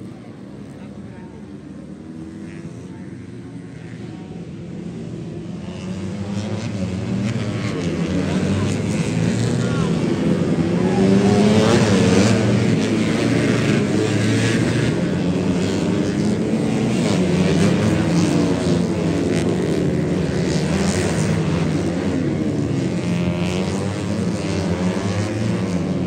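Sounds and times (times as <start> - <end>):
racing motorcycles at high revs: 5.4 - 26.0.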